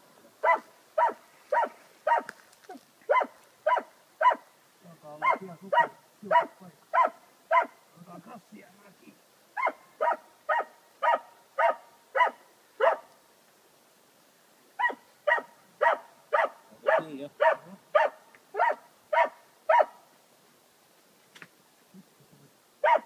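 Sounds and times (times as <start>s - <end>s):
dog barking loudly: 0.4s - 2.3s, 3.1s - 4.4s, 5.2s - 7.8s, 9.6s - 13.1s, 14.8s - 20.0s.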